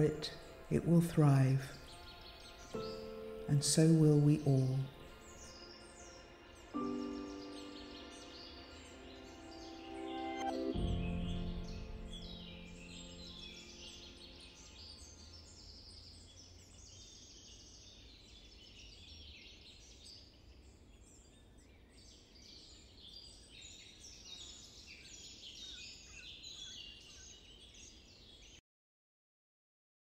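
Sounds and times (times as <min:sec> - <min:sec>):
music track: 0:00.0 - 0:15.5
small birds chirping and trilling: 0:00.0 - 0:28.6.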